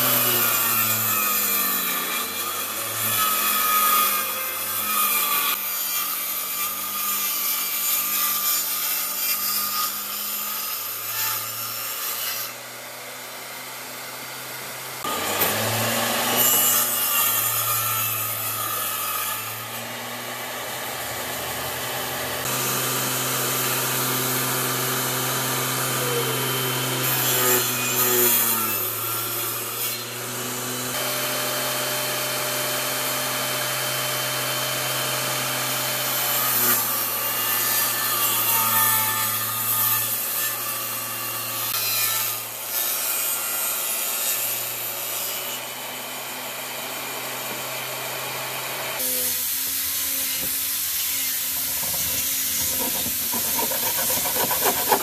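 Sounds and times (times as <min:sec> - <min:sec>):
saw cutting wooden boards: 0:00.0 - 0:55.0
table saw motor hum: 0:12.4 - 0:36.0, 0:45.7 - 0:55.0.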